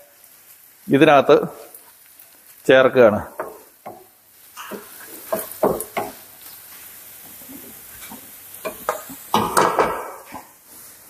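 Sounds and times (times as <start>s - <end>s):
faint sizzle: 0.0s - 11.0s
wooden spatula scraping frying pan: 3.3s - 11.0s
pot lid and pan clattering: 8.0s - 10.4s.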